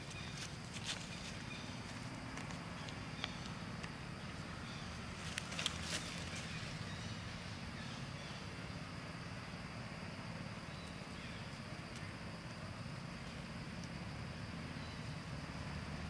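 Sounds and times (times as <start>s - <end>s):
dry leaves crackling and rustling: 0.0s - 2.9s, 5.1s - 6.9s
steady low hum: 0.0s - 16.0s.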